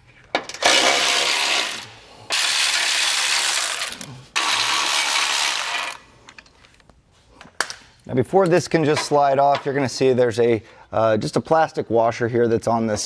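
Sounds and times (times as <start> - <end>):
electric ratchet spinning bolts: 0.5 - 6.0.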